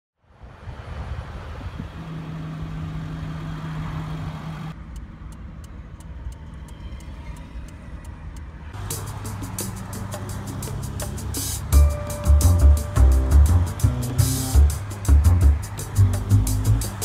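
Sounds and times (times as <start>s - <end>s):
car engine idling: 2.0s - 17.0s
turn signal ticking: 4.7s - 17.0s.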